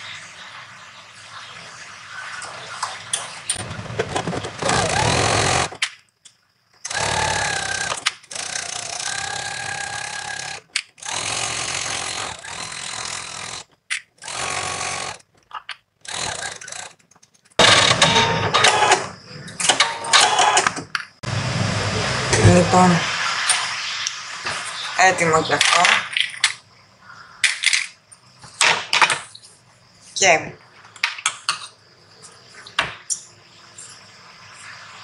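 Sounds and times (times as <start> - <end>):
sewing machine stitching: 3.6 - 5.8, 6.8 - 15.3, 16.0 - 17.0, 17.6 - 19.1.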